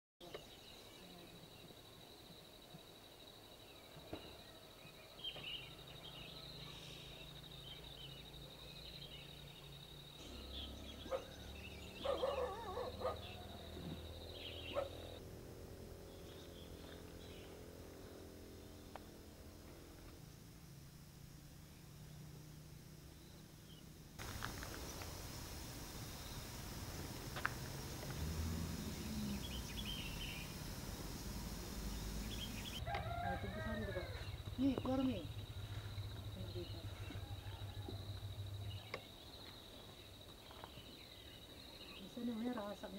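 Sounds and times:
faint bird chirps: 0.2s - 15.2s, 27.8s - 42.9s
animal calls: 10.2s - 15.2s
low steady rumble: 24.2s - 38.9s
high-pitched insect drone: 24.2s - 39.0s.

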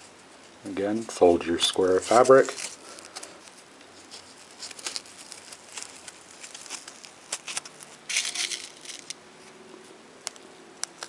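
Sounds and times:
fabric rustling: 1.8s - 9.6s.

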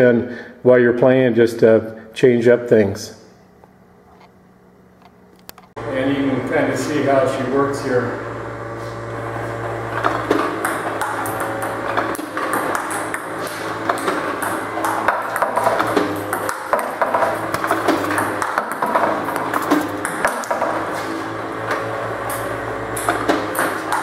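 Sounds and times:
low hum: 3.3s - 24.0s
ping pong balls clicking: 10.0s - 20.8s, 23.0s - 24.0s.

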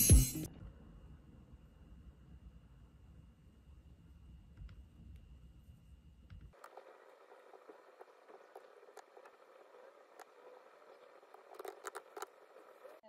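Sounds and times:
quiet room hiss: 0.4s - 13.0s
laptop keyboard typing: 6.6s - 13.0s.

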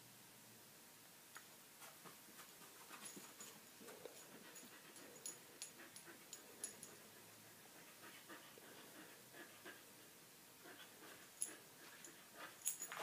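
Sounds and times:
puppy panting: 2.7s - 13.0s.

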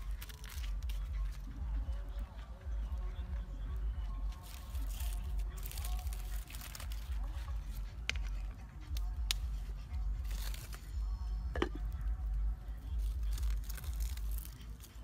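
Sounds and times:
leaves crinkling and rustling: 0.0s - 1.0s, 4.3s - 7.5s, 10.2s - 10.9s, 13.0s - 15.0s
steady low rumble: 0.0s - 14.7s
clay pot lid knock: 11.6s - 11.8s.

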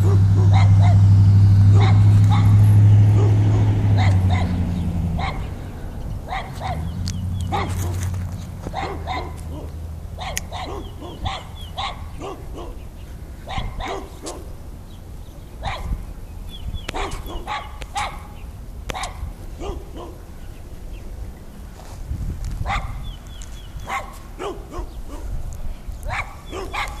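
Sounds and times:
dog barking: 0.0s - 1.1s, 1.7s - 4.6s, 5.2s - 5.5s, 6.3s - 6.9s, 7.5s - 8.1s, 8.7s - 14.5s, 15.6s - 16.0s, 16.9s - 20.2s, 22.6s - 23.0s, 23.8s - 25.4s, 26.0s - 27.0s
low steady rumble: 0.0s - 13.8s.

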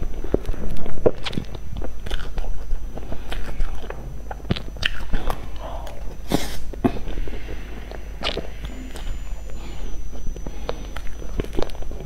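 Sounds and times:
person chewing with lip smacks: 0.0s - 9.1s.

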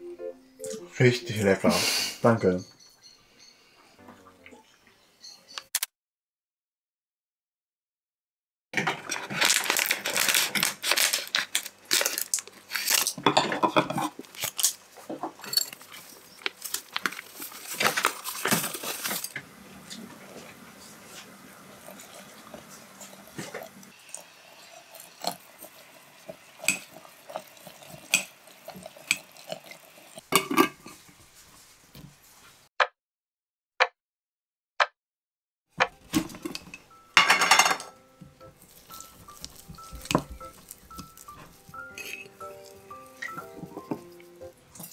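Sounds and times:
utensils and glassware clattering: 8.8s - 12.2s, 12.9s - 16.7s, 17.7s - 19.4s, 27.8s - 29.6s, 30.4s - 31.0s, 36.1s - 38.0s, 38.9s - 44.1s
hot water pouring into glass jar: 21.7s - 30.3s
chopsticks clinking against glass: 38.8s - 44.0s.

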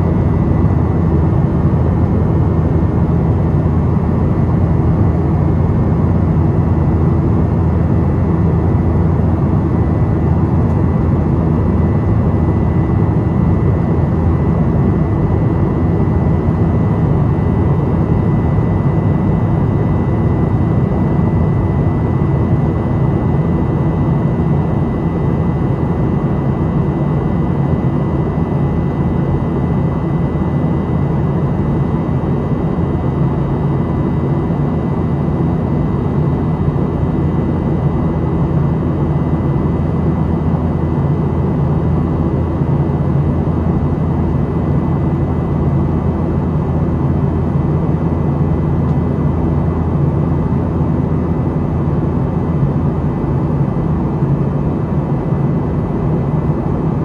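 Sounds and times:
airplane cabin rumble: 43.0s - 57.0s.

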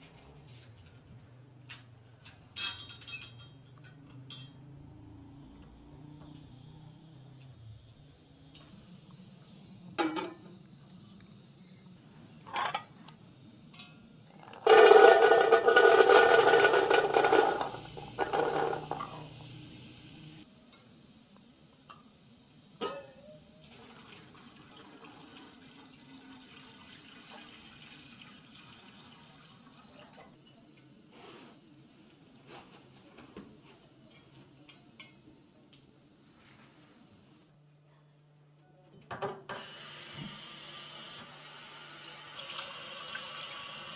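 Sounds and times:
utensils clinking: 2.3s - 4.8s, 13.8s - 19.4s
chickpeas rattling into metal pot: 14.5s - 19.4s.

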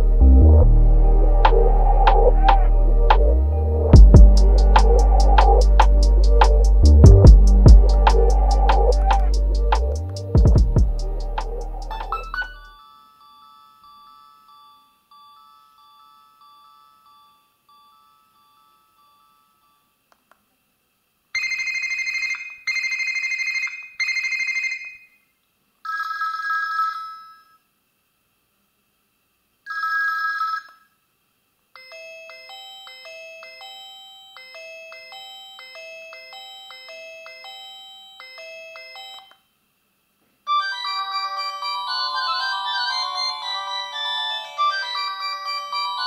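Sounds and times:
beeping melody: 0.0s - 12.8s, 40.5s - 46.0s
phone ringtones through speaker: 11.9s - 14.8s, 21.4s - 25.2s, 25.9s - 27.6s, 29.7s - 31.0s, 40.5s - 46.0s
electronic ring bursts: 21.4s - 25.2s.

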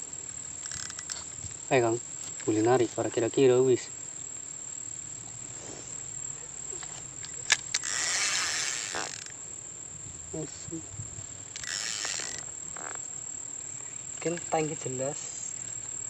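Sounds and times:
high-pitched insect drone: 0.0s - 16.0s
sharp clicks: 0.3s - 1.3s, 7.2s - 9.3s, 11.5s - 12.5s
mechanical whirring: 0.6s - 1.4s, 7.3s - 9.4s, 11.5s - 12.5s.

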